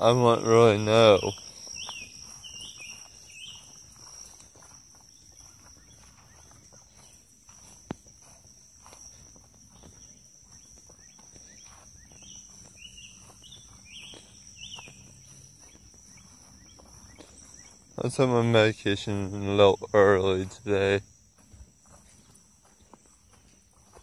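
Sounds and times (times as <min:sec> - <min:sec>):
faint footsteps walking: 0:00.0 - 0:24.0
high insect drone: 0:00.0 - 0:24.0.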